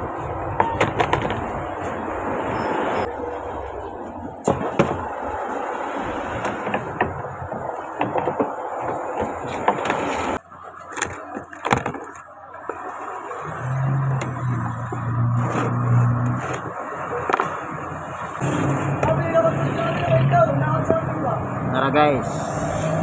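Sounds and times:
street noise: 0:00.0 - 0:23.0
vehicle engine hum: 0:00.0 - 0:23.0
tool scraping and knocking: 0:06.3 - 0:10.4.

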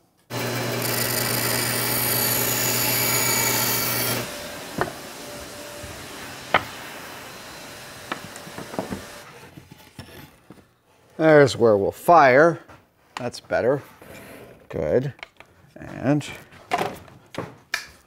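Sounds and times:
power tool motor running: 0:00.3 - 0:09.2.

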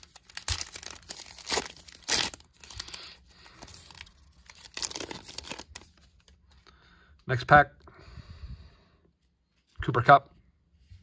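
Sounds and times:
foil wrapper crinkling and tearing: 0:00.0 - 0:06.0.

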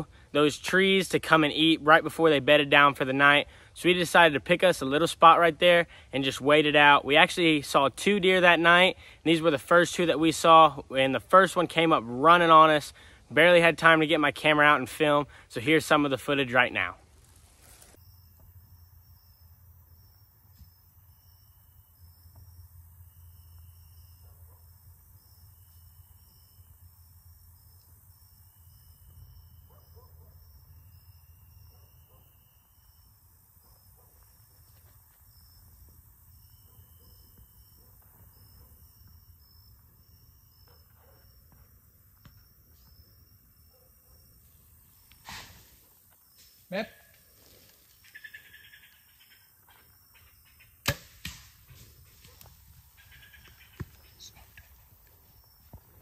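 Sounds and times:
high insect chirp: 0:17.2 - 0:56.0.

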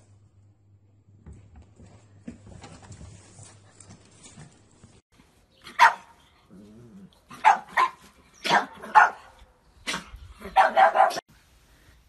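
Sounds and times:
dog barking: 0:05.8 - 0:06.1, 0:07.4 - 0:11.2.

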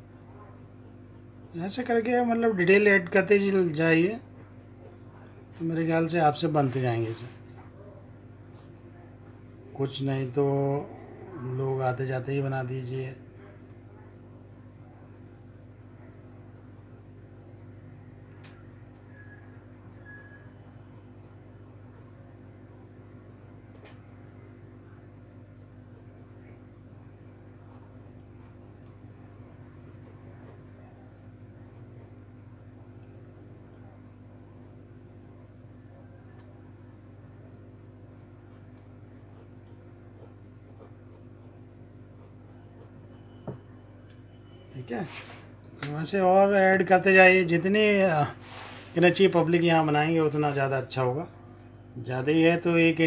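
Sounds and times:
steady low hum: 0:00.0 - 0:53.0
pencil scratching on paper: 0:00.4 - 0:08.8, 0:14.0 - 0:35.5, 0:36.8 - 0:43.8.

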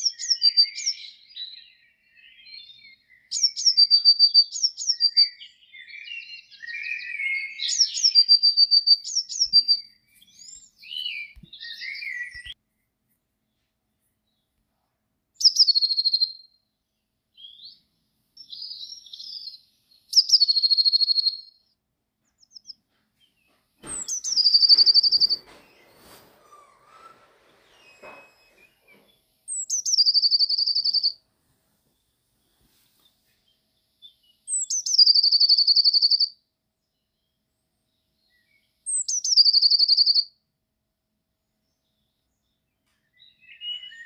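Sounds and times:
songbirds singing trilling phrase: 0:00.0 - 0:12.6, 0:15.4 - 0:16.6, 0:17.4 - 0:21.7, 0:23.5 - 0:31.2, 0:33.6 - 0:36.3, 0:38.1 - 0:40.3, 0:42.0 - 0:44.0
soft low bird chirps: 0:00.0 - 0:14.8, 0:15.4 - 0:31.2, 0:31.8 - 0:40.3, 0:41.4 - 0:44.0.

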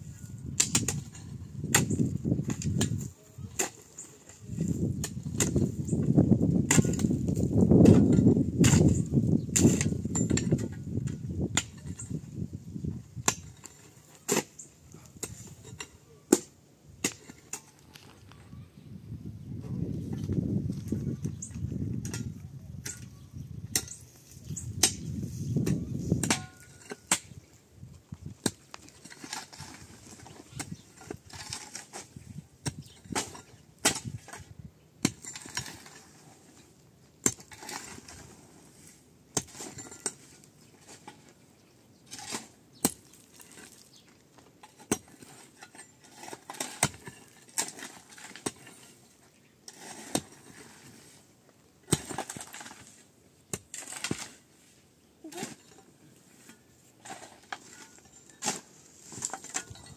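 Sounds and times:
scraping or rustling: 0:51.9 - 0:59.9.

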